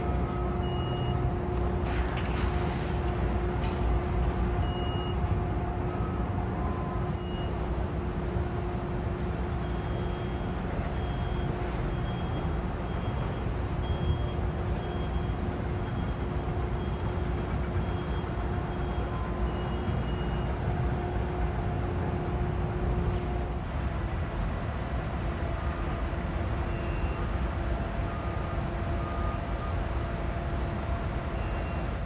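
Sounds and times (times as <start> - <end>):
reversing alarm beeping: 0.0 - 1.8, 3.0 - 23.6, 26.6 - 30.2, 31.1 - 32.0
faint steady hum: 0.0 - 32.0
heavy vehicle engines rumbling: 0.0 - 32.0.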